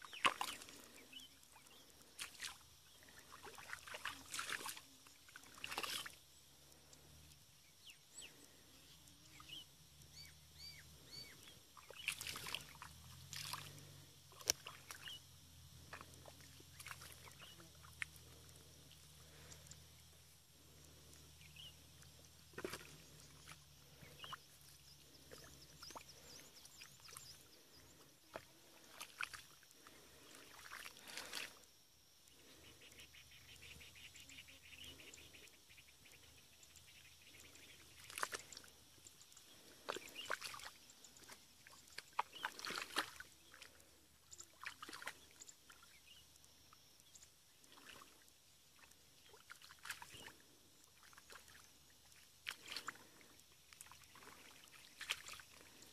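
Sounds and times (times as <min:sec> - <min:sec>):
water splashing: 0:00.0 - 0:07.1, 0:10.7 - 0:15.2, 0:15.8 - 0:31.6, 0:37.4 - 0:45.8, 0:47.6 - 0:55.9
mud squelching: 0:00.0 - 0:07.4, 0:08.2 - 0:31.6, 0:37.3 - 0:46.3, 0:47.6 - 0:55.9.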